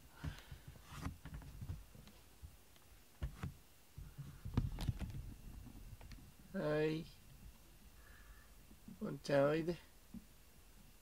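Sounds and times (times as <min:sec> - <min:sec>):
rustling handling noise: 0:00.2 - 0:06.4.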